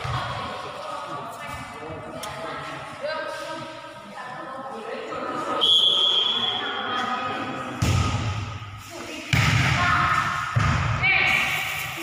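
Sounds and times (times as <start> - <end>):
players' voices echoing: 0.0 - 12.0
volleyball thudding: 7.8 - 8.6, 9.3 - 11.4.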